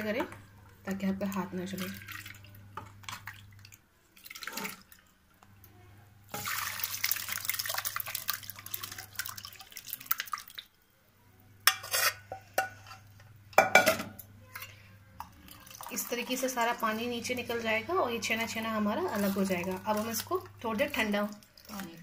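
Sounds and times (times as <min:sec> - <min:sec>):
liquid pouring through a strainer: 0:01.7 - 0:05.1, 0:06.3 - 0:10.7, 0:14.6 - 0:16.8, 0:19.0 - 0:22.0.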